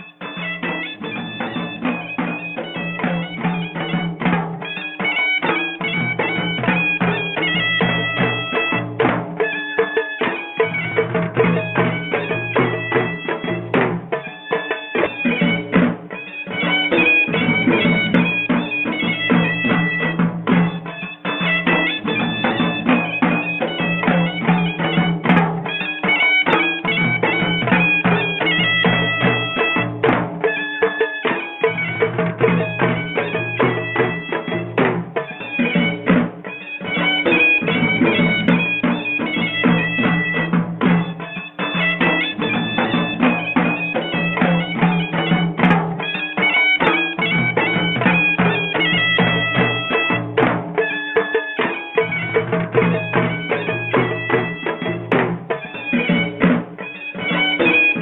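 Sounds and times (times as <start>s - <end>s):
drum beats: 0.0s - 58.0s
wind instrument melody: 0.0s - 58.0s.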